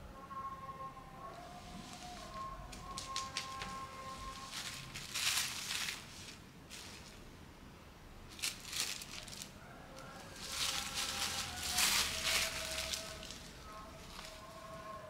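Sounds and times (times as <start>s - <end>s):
plastic bag crinkling: 2.2s - 7.2s, 8.3s - 14.7s.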